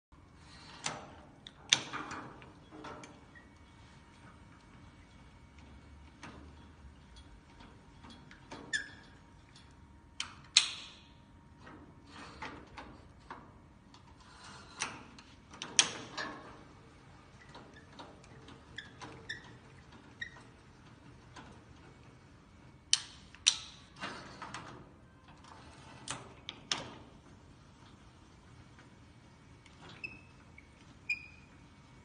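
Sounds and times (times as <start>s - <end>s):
bed crank clicking: 22.9s - 24.8s.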